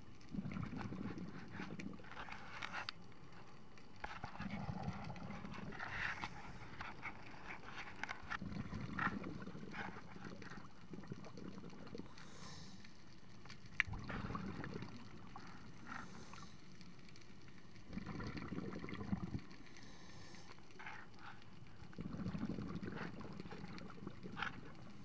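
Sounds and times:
underwater bubbling rumbles: 0.0s - 2.2s, 4.1s - 6.6s, 8.2s - 12.4s, 13.8s - 16.3s, 17.7s - 19.6s, 21.6s - 25.0s
faint hiss: 10.0s - 18.0s, 18.6s - 22.2s.

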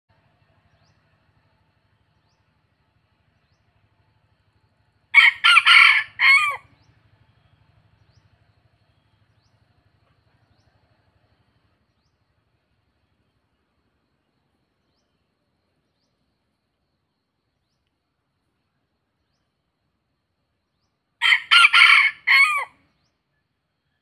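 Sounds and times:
rooster crowing: 5.2s - 6.7s, 21.2s - 22.8s.

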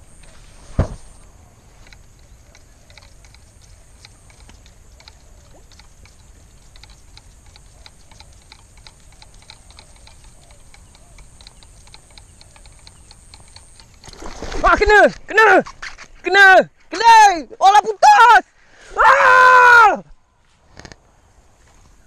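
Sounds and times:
fishing reel clicking: 1.8s - 14.2s.

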